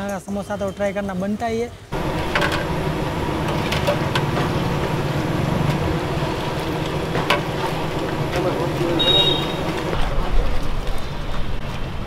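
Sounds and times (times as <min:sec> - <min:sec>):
food deep-frying in bubbling oil: 0:02.0 - 0:12.0.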